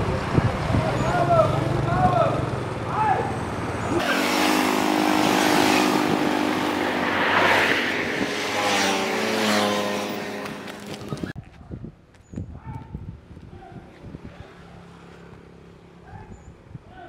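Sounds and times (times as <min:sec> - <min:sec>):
vehicle engine running: 0:00.0 - 0:11.4.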